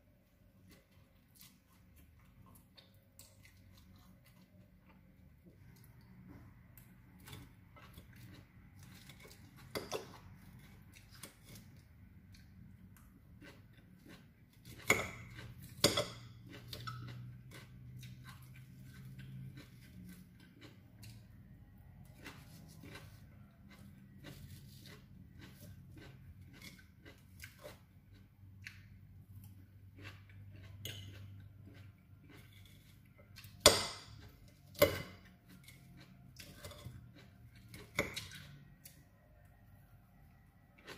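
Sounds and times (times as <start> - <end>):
person chewing: 0.2 - 40.9.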